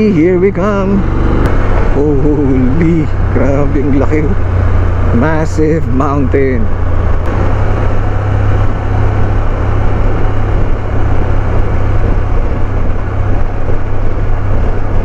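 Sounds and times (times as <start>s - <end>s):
motorcycle engine hum: 0.0s - 15.0s
wind rushing on microphone: 0.0s - 15.0s.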